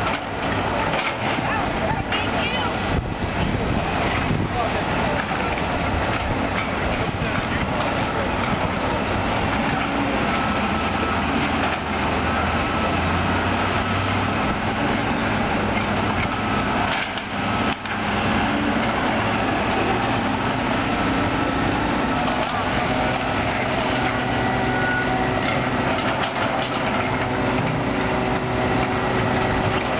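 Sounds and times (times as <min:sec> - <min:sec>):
excavator diesel engines running: 0:00.0 - 0:29.9
wind on microphone: 0:02.8 - 0:04.8.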